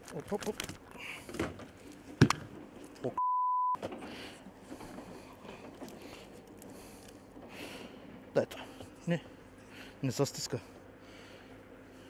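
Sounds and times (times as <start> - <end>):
censor bleep: 3.2 - 3.8.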